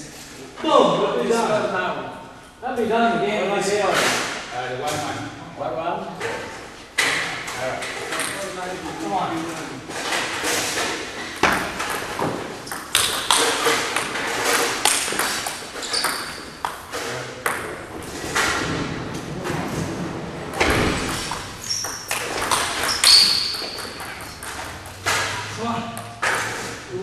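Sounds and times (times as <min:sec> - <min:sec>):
table tennis ball clicking and bouncing: 0:10.0 - 0:18.7, 0:20.5 - 0:26.6.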